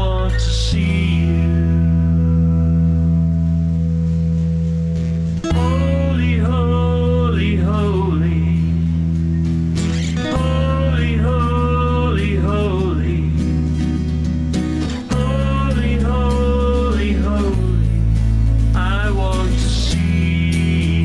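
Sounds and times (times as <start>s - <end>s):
person singing worship song: 0.0s - 2.3s, 5.4s - 9.0s, 10.2s - 13.4s, 15.0s - 18.1s, 18.7s - 21.0s
sustained instrumental backing: 1.1s - 21.0s.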